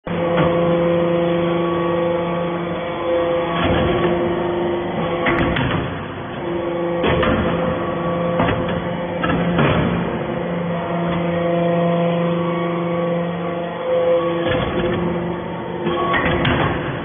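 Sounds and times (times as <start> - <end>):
machine hum: 0.0 - 17.0
metallic knocks and clanks: 6.9 - 10.1, 15.8 - 17.0.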